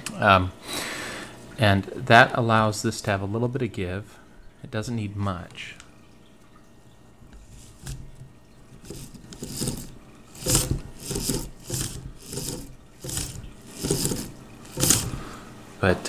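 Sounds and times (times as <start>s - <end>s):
hand rubbing printer carriage: 7.4s - 15.4s.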